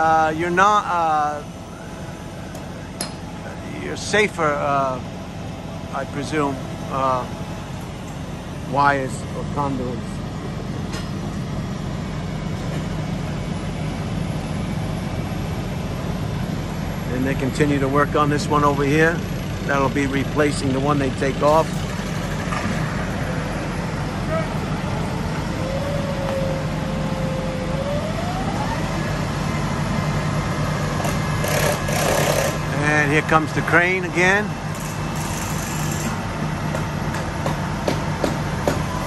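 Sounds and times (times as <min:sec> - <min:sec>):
truck engines running: 0:00.0 - 0:39.0
rising whine: 0:22.4 - 0:36.4.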